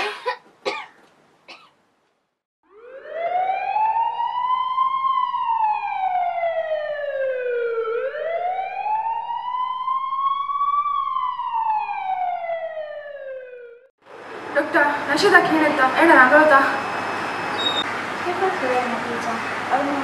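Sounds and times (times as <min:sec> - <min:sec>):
siren wailing: 0:02.6 - 0:13.9, 0:15.8 - 0:18.0.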